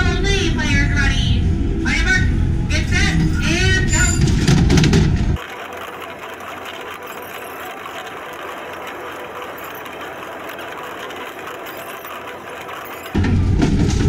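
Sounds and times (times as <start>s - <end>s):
arcade game mechanical whir: 3.0s - 14.0s.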